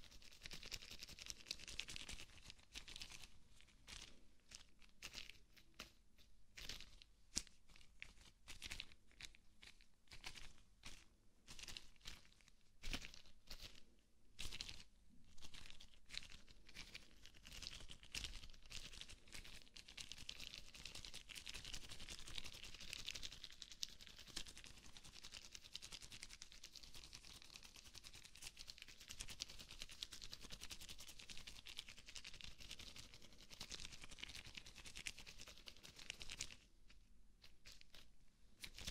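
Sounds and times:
rubber gloves crinkling and rubbing: 31.9 - 38.9.

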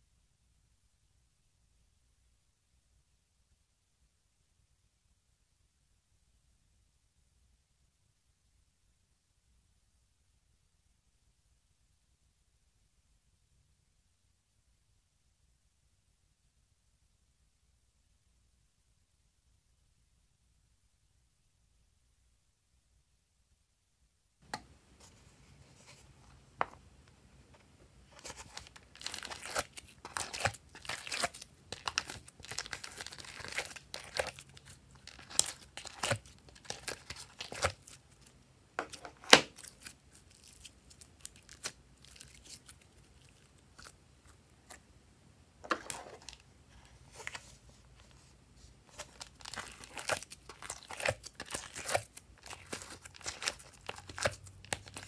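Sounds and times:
clay pressed into silicone molds: 24.4 - 55.0.

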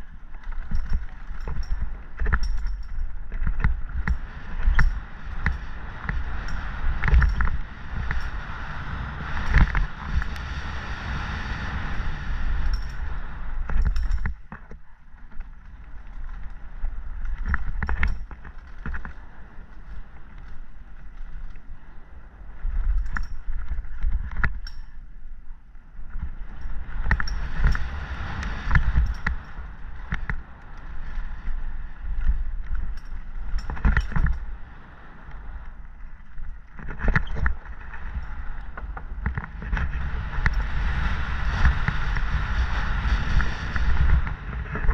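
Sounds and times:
bike clattering over bumps: 0.0 - 10.4, 12.5 - 21.6
bike tyres rolling over dirt: 0.0 - 44.9
wind rumble on microphone: 0.0 - 44.9.

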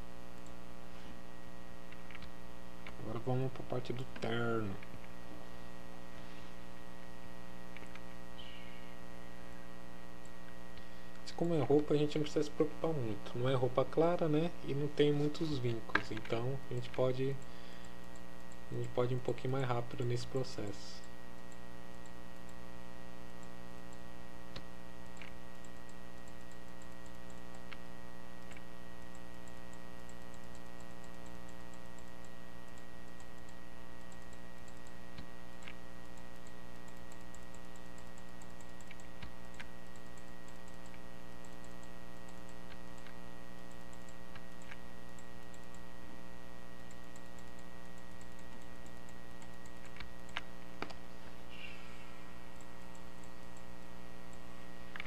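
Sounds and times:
electrical hum: 0.0 - 55.0
computer mouse clicks: 1.9 - 3.0, 7.7 - 8.7, 15.3 - 19.1, 23.4 - 45.9, 46.8 - 51.4, 52.5 - 55.0.

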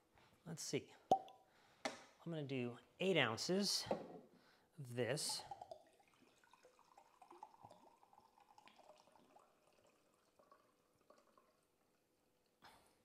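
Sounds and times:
liquid pouring from glass bottle: 5.1 - 12.1.

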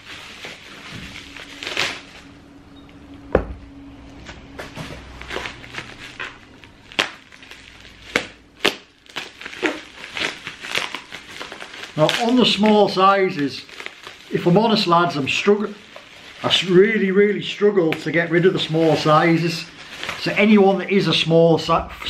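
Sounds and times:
plastic bag crinkling: 0.0 - 2.7, 4.6 - 21.4
dull thump: 3.3 - 3.7.

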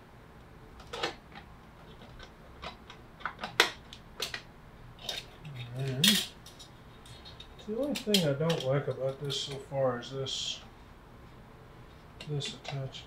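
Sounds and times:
metal parts clicking and clinking: 5.0 - 9.4.

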